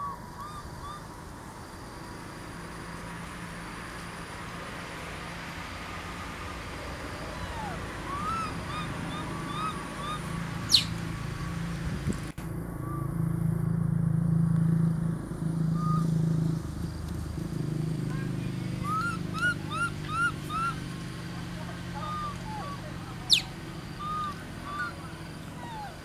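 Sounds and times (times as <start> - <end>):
low engine hum: 0.0 - 26.0
short chirping calls: 7.3 - 11.5, 18.8 - 20.9, 21.8 - 26.0
sharp rising squeal: 12.6 - 13.9.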